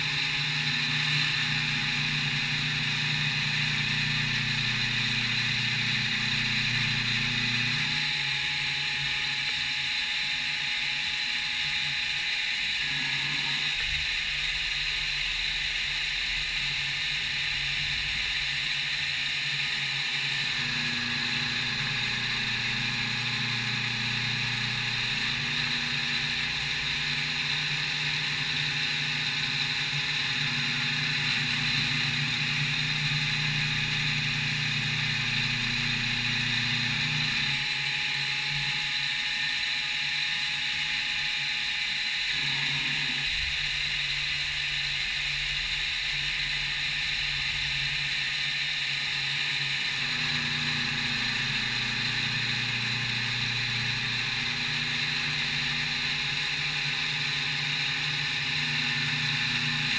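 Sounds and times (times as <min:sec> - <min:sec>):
machine low hum: 0:00.0 - 0:59.9
milling machine whine and hiss: 0:00.0 - 0:59.9.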